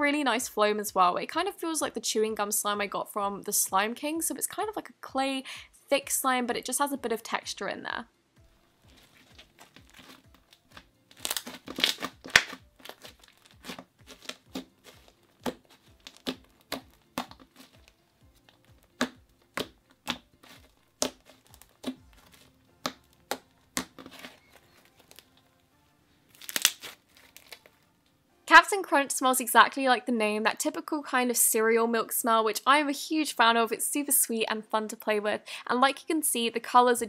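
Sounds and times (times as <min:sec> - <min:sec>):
soft background music: 0:00.0 - 0:37.0
slime crackling and popping: 0:08.8 - 0:25.4, 0:26.3 - 0:27.8.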